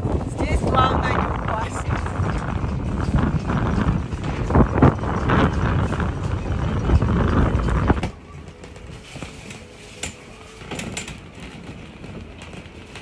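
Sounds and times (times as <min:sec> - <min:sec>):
wind buffeting the microphone: 0:00.0 - 0:09.4.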